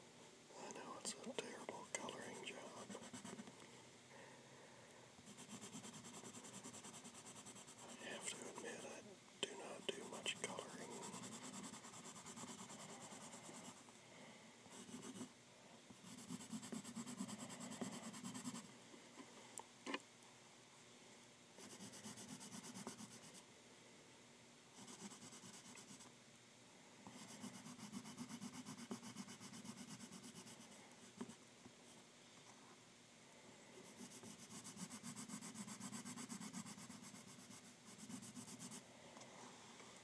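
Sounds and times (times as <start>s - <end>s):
pencil strokes on paper: 0.6s - 3.4s, 5.2s - 13.8s, 14.7s - 15.3s, 16.0s - 18.7s, 21.6s - 23.4s, 24.8s - 26.1s, 27.1s - 32.0s, 33.8s - 38.8s.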